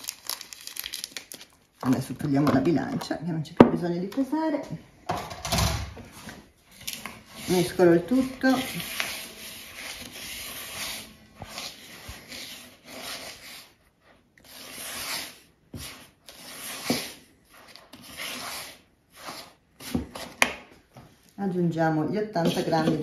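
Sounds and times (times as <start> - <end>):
dry flour stirred in bowl: 6.1 - 20.4, 22.2 - 23.0.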